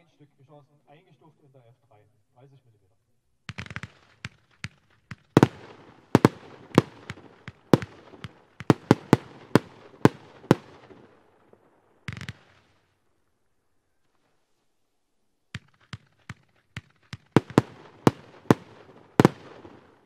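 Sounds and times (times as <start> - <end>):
firework pops: 3.5 - 11.0, 12.1 - 12.9, 15.5 - 19.9
loud sharp firework bangs: 3.5 - 13.0, 15.5 - 20.0
firework crackling: 3.5 - 13.1, 15.6 - 20.0.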